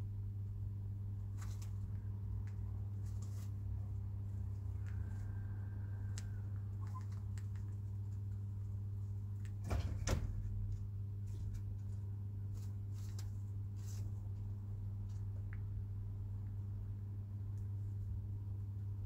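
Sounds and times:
steady low hum: 0:00.0 - 0:19.0
chickens pecking light taps: 0:01.4 - 0:03.6, 0:04.5 - 0:05.3, 0:06.1 - 0:08.6.

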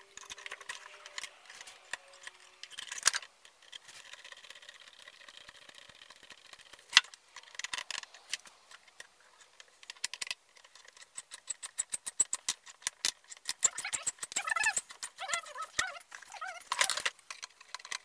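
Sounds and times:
tools clicking and tapping: 0:00.0 - 0:18.0
short squeak: 0:13.6 - 0:17.0.

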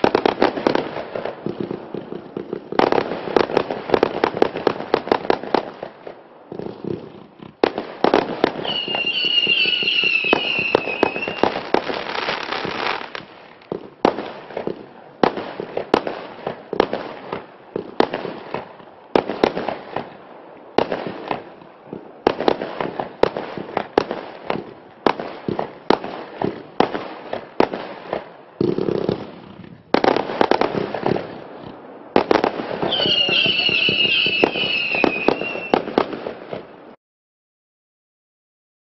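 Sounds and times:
fireworks crackling: 0:00.0 - 0:37.0
fireworks shot reports: 0:08.4 - 0:11.8, 0:32.2 - 0:36.6
high whistle: 0:08.6 - 0:11.5, 0:32.9 - 0:35.8.

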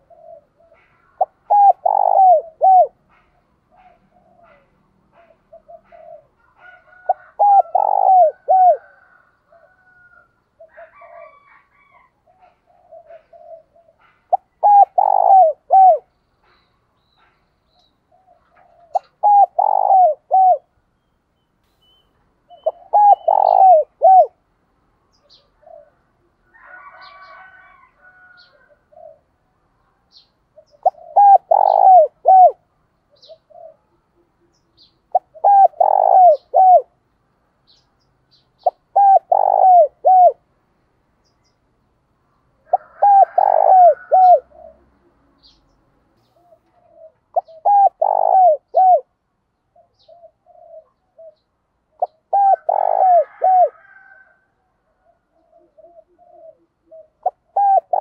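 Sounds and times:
dove cooing: 0:00.0 - 0:16.6, 0:18.1 - 0:20.8, 0:22.5 - 0:24.4, 0:25.2 - 0:29.4, 0:30.6 - 0:37.0, 0:38.6 - 0:40.4, 0:42.6 - 0:45.6, 0:46.2 - 0:49.2, 0:49.8 - 0:58.0
small birds chirping: 0:12.3 - 0:24.4, 0:29.9 - 0:42.6, 0:44.0 - 0:52.8.

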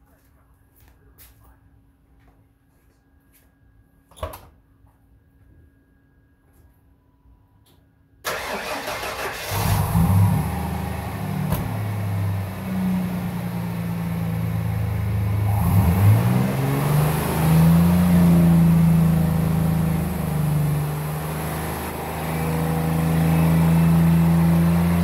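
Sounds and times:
engine starter cranking: 0:08.3 - 0:09.9
car engine running: 0:09.5 - 0:25.0.

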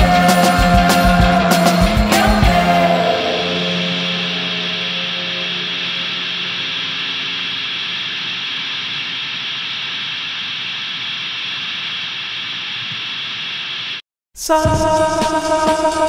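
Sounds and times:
steady hiss: 0:04.0 - 0:14.0.

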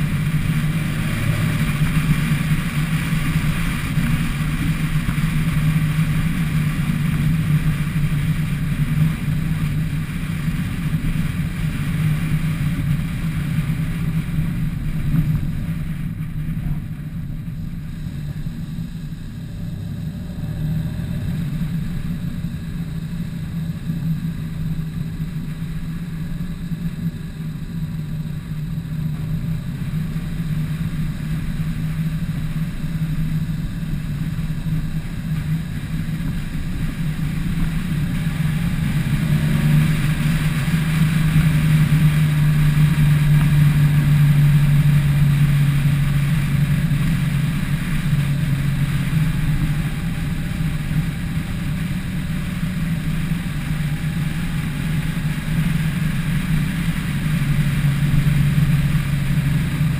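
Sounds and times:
car engine drone: 0:00.0 - 0:59.9
road and wind noise: 0:00.0 - 0:59.9.

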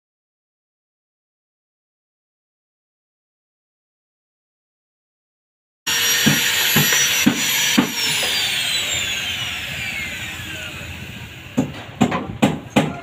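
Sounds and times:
angle grinder whine: 0:05.9 - 0:12.0
sharp knocks: 0:06.0 - 0:08.4, 0:11.6 - 0:13.0.

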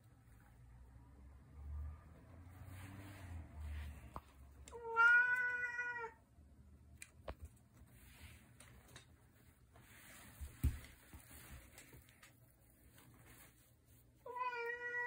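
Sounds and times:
cat meowing: 0:04.7 - 0:06.2, 0:14.2 - 0:15.0.

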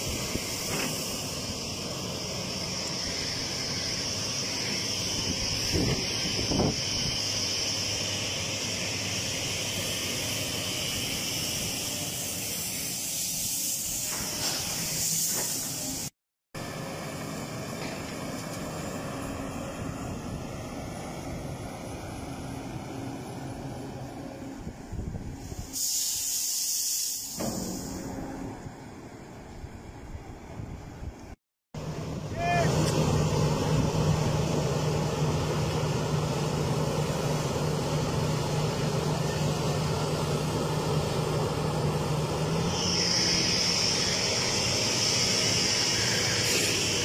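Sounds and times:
diesel engine running steadily: 0:00.0 - 0:26.0, 0:27.3 - 0:47.0
rush of noise: 0:42.4 - 0:47.0.

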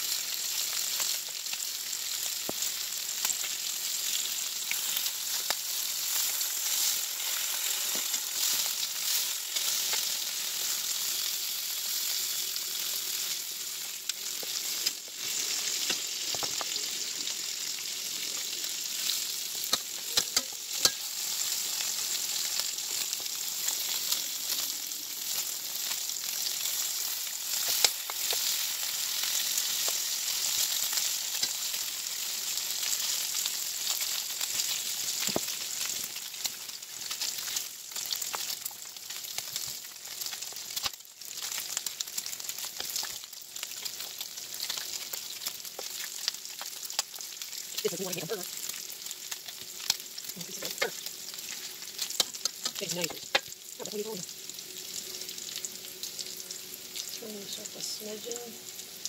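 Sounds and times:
bacon sizzling: 0:00.0 - 0:59.0
metal tongs clicking on pan: 0:19.7 - 0:21.0.

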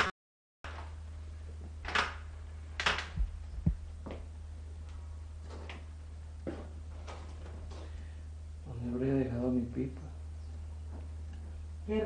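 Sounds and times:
low mains hum: 0:00.7 - 0:12.0
rustling and knocks of movement: 0:02.8 - 0:08.1
low thuds: 0:03.0 - 0:04.2.

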